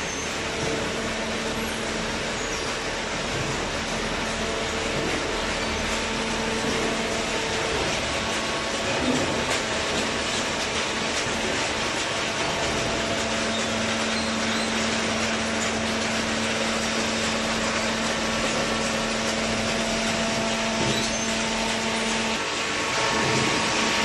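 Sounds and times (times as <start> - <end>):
baler machine hum: 0.0 - 24.0
machine knock: 3.2 - 22.4.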